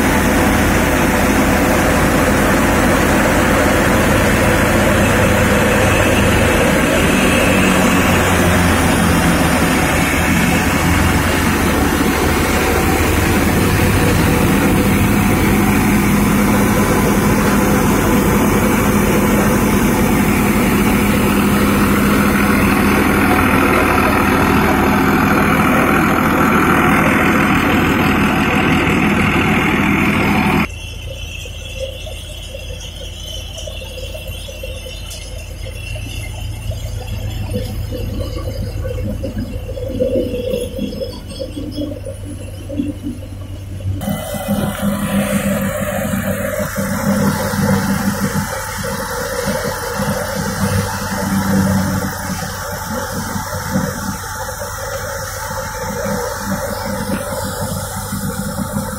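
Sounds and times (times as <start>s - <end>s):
thresher and tractor engine running: 0.0s - 58.9s.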